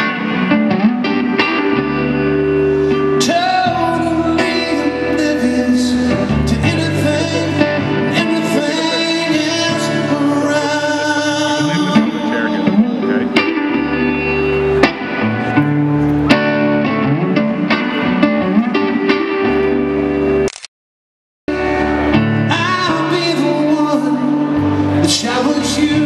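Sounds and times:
electric guitar: 0.0 - 20.6, 21.5 - 26.0
man singing: 3.2 - 13.4, 22.4 - 26.0.

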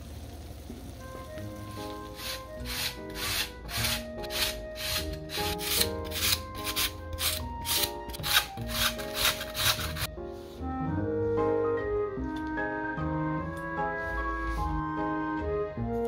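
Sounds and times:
background music: 1.0 - 16.0
potato rasping on metal grater: 2.1 - 10.1.

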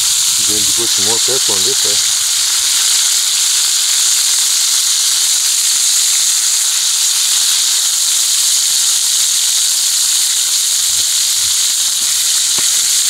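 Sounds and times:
bacon sizzling in a skillet: 0.0 - 13.0.

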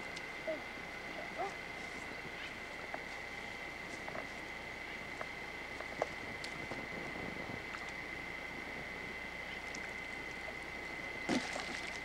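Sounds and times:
toy splashing into water: 11.3 - 12.0.

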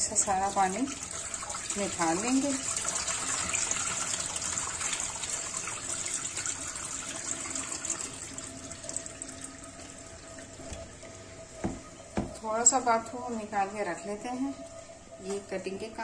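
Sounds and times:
soft knock: 11.6 - 12.4.

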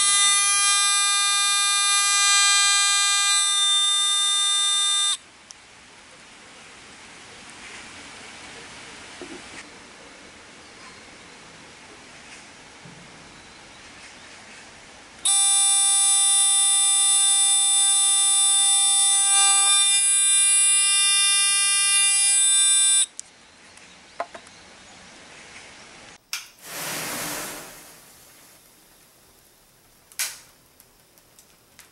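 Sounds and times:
alarm buzzer tone: 0.0 - 5.2, 15.3 - 23.1
flame whoosh: 26.6 - 29.0.

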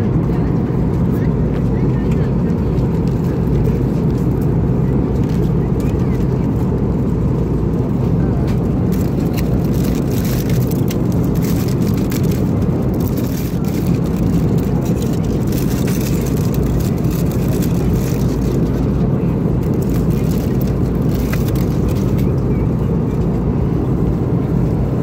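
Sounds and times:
airplane cabin drone: 0.0 - 25.0
aluminium foil crinkling: 8.9 - 19.0, 19.6 - 22.3.

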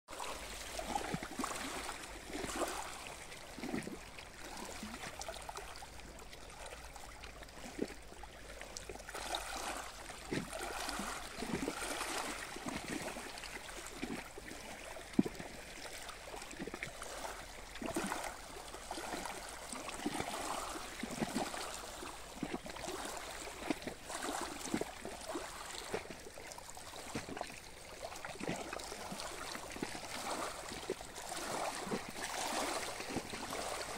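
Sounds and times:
small waves lapping: 0.1 - 33.9.

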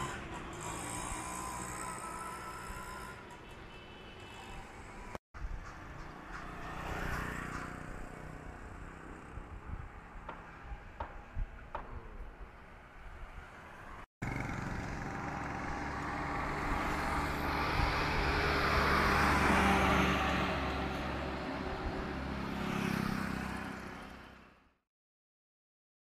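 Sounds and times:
road traffic noise: 0.0 - 24.8.

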